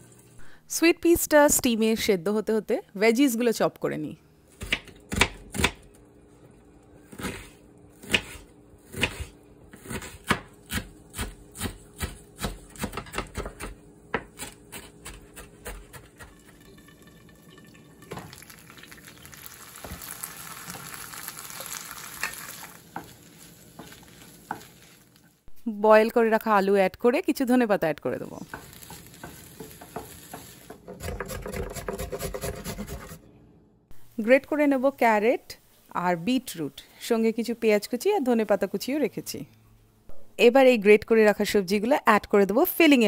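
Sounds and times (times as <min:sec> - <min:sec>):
knife chopping on cutting board: 0:04.6 - 0:05.8, 0:07.2 - 0:16.3, 0:29.7 - 0:33.2
frying pan sizzling: 0:16.2 - 0:25.4, 0:28.2 - 0:30.9.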